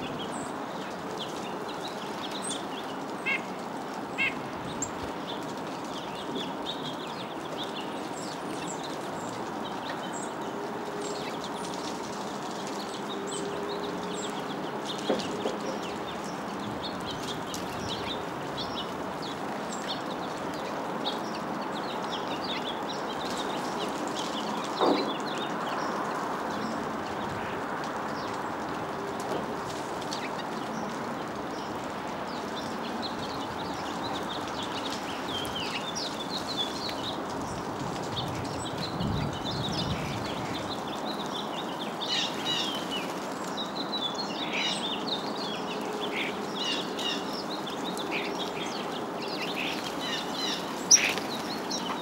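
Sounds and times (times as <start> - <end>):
outdoor background noise: 0.0 - 52.0
songbirds chirping: 0.0 - 52.0.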